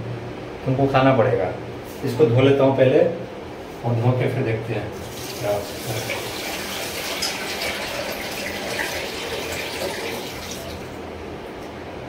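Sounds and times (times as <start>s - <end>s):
tap water running into pot: 5.1s - 10.9s.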